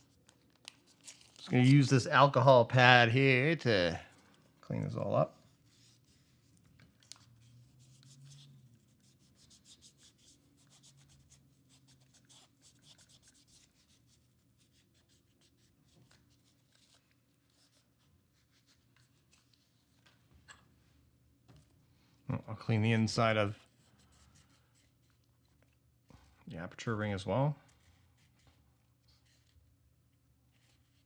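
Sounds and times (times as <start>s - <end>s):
pad rubbing lens parts: 5.4s - 20.2s.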